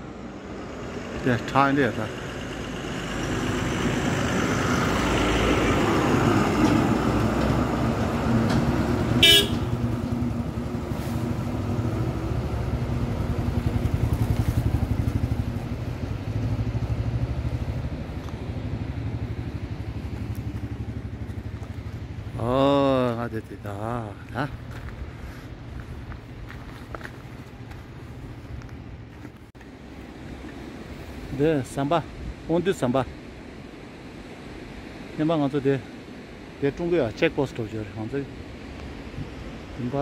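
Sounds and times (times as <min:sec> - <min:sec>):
vehicle engine and road noise: 0:00.0 - 0:40.0
short horn toot: 0:09.2 - 0:09.8.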